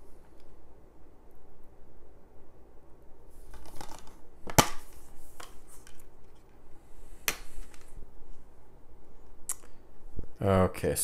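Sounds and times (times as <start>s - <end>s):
plastic case rustling: 3.4s - 6.5s
plastic case snapping open: 3.5s - 4.9s.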